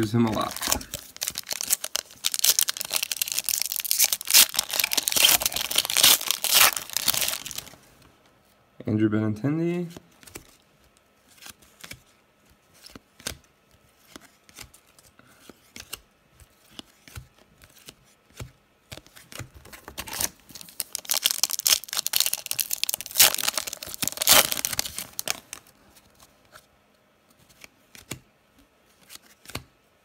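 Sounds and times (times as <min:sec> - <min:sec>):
wrapper crinkling: 0:00.0 - 0:07.8, 0:20.1 - 0:25.7
cards being flipped: 0:29.0 - 0:29.6.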